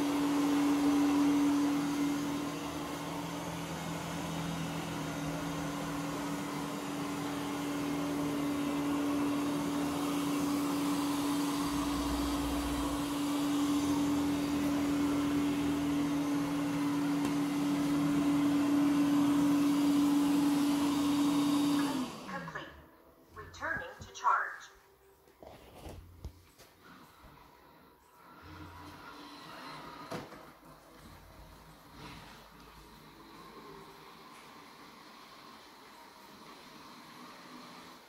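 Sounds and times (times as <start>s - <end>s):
robot vacuum motor humming: 0.0s - 22.6s.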